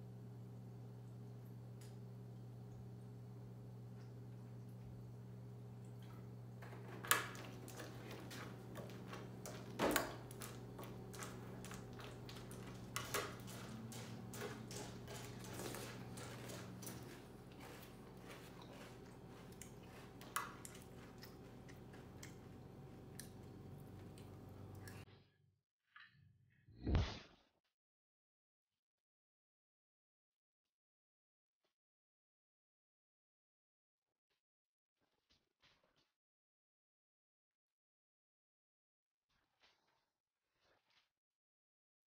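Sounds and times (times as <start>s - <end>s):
steady low hum: 0.0s - 25.1s
chewing crunchy cereal: 5.8s - 25.0s.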